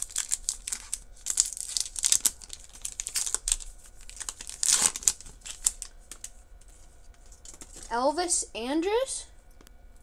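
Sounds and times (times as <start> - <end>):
wrapper crinkling and tearing: 0.0 - 6.4.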